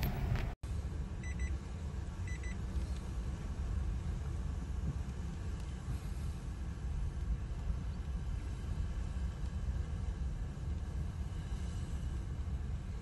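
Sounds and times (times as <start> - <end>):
car rumble: 0.0 - 0.6.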